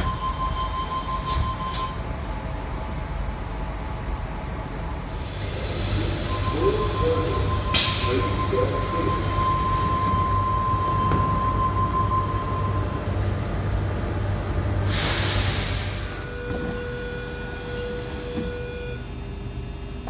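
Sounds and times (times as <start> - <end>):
door warning tone: 0.0 - 2.1, 5.4 - 13.2, 16.0 - 19.4
train low hum: 0.0 - 20.0
air hiss from train doors: 5.0 - 10.2, 14.8 - 18.6.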